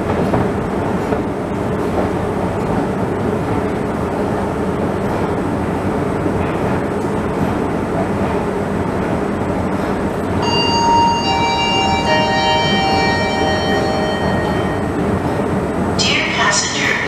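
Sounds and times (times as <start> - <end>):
public-address chime: 10.4 - 15.2.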